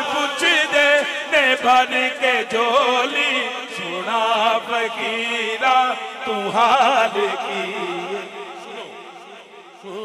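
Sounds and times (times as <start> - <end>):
man singing into a microphone: 0.0 - 10.0.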